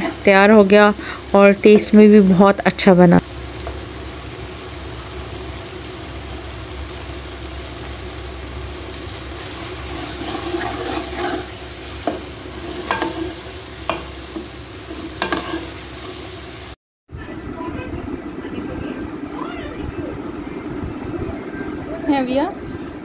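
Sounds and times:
curry sizzling in pot: 0:00.0 - 0:16.8
spoon stirring: 0:09.9 - 0:15.8.

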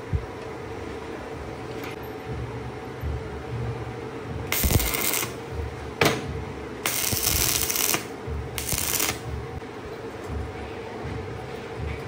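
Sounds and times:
welding arc crackling: 0:04.5 - 0:05.4, 0:06.8 - 0:09.3.

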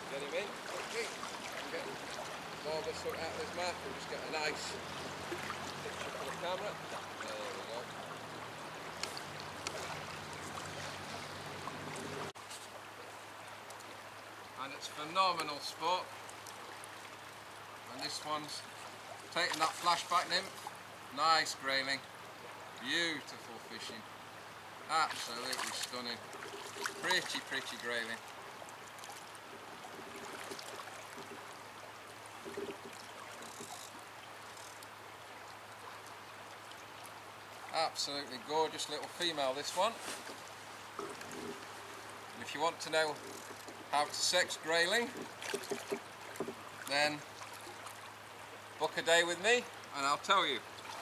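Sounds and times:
shallow river water running: 0:00.0 - 0:51.0
faint clicks: 0:09.0 - 0:10.5.

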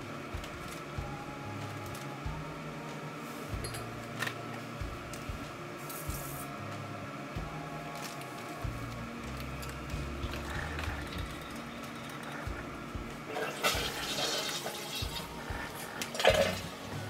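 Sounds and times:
liquid pouring into a mug: 0:13.3 - 0:15.4.

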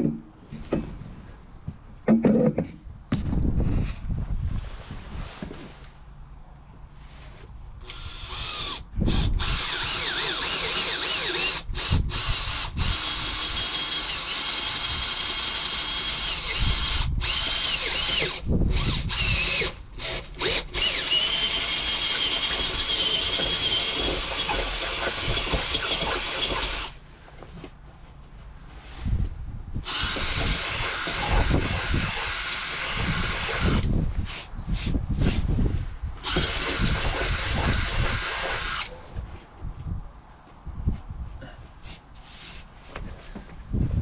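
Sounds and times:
cordless drill boring into wood: 0:07.8 - 0:27.0, 0:29.8 - 0:33.9, 0:36.2 - 0:38.9.

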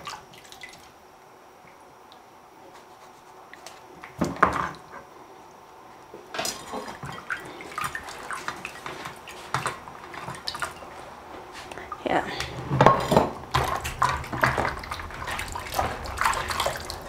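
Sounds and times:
water splashing in a bowl: 0:06.3 - 0:11.0, 0:12.8 - 0:17.0.

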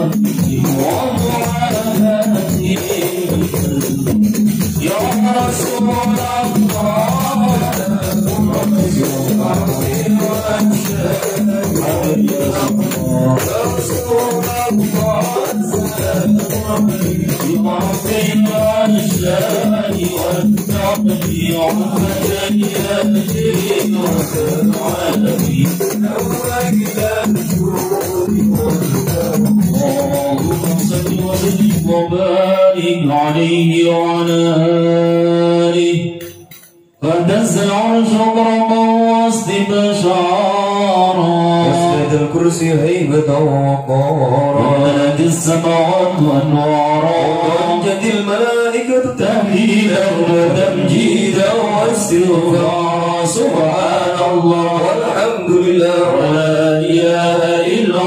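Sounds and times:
rattling hand percussion: 0:00.0 - 0:39.8
men singing together: 0:00.0 - 0:58.0.

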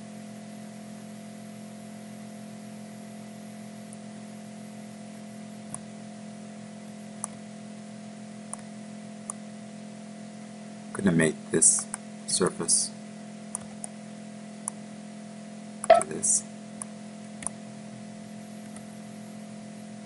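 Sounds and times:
background hiss and hum: 0:00.0 - 0:20.0
computer mouse clicks: 0:13.5 - 0:13.9.

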